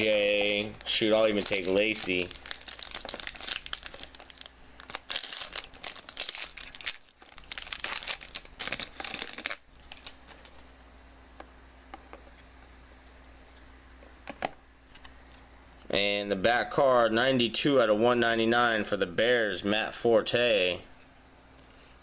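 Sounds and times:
cellophane crinkling and tearing: 0.0 - 10.6.

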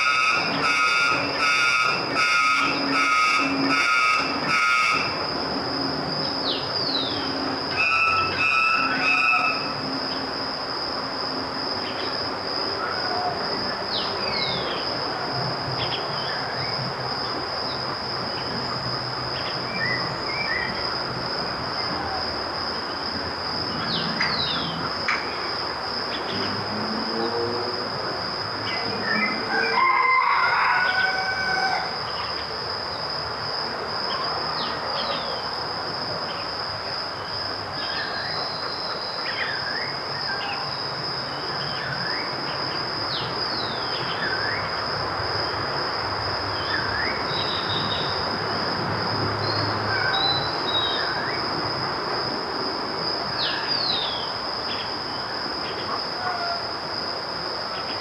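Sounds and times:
high insect drone: 0.0 - 58.0
constant hiss: 31.7 - 58.0.

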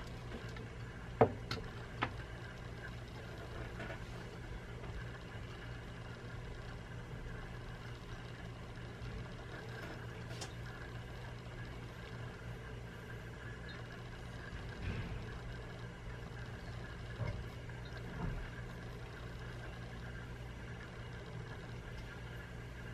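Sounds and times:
steady low hum: 0.0 - 22.9.

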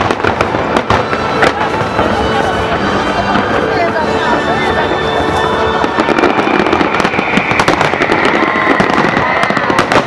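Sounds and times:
fireworks bursting with crackling pops: 0.0 - 10.0.

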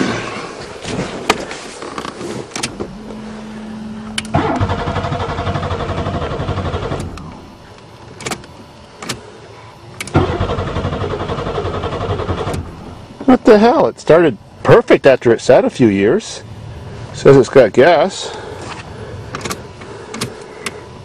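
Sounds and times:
ignition key clicks: 4.1 - 4.7, 6.9 - 9.2, 19.3 - 20.8
starter cranking engine: 4.2 - 7.4, 10.0 - 12.8.

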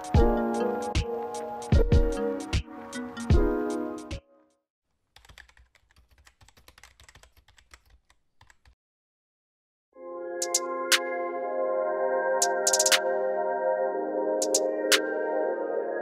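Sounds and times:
music: 0.0 - 4.6, 10.0 - 16.0
keyboard typing clicks: 5.2 - 8.8, 12.4 - 13.0, 14.4 - 14.6.

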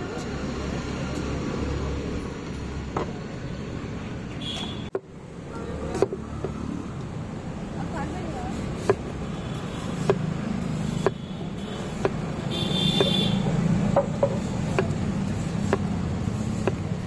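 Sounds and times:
street noise hum: 0.0 - 17.0
knife chopping on board: 15.6 - 15.9.

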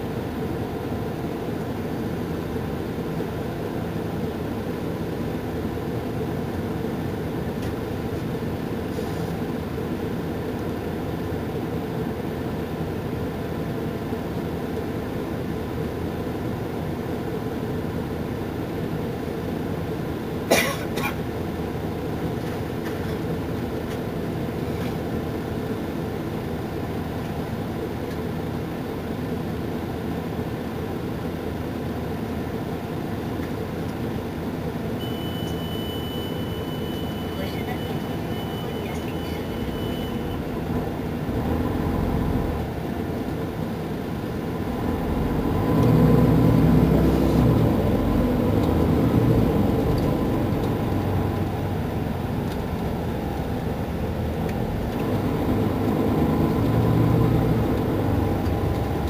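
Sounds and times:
diesel bus engine idling: 0.0 - 59.0.

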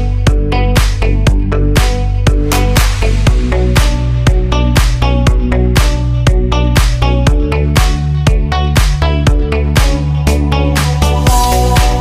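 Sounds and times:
electronic dance music: 0.0 - 12.0.

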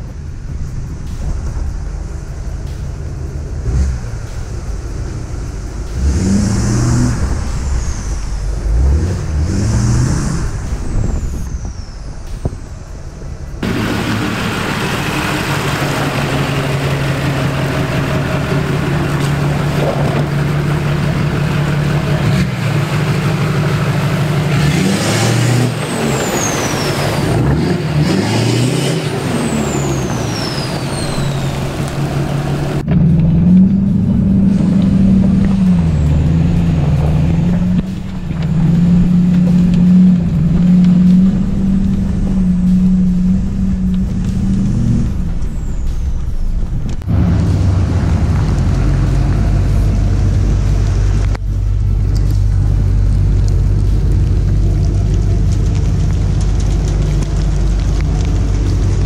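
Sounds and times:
diesel pickup engine revving: 0.0 - 59.0
high falling whistles: 5.8 - 19.5, 24.8 - 27.4, 28.0 - 32.3.

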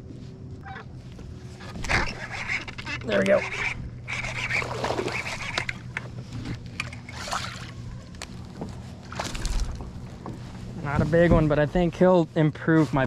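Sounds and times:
rod and boat clicks and knocks: 4.2 - 7.4
fish splashing in water: 7.0 - 7.8.

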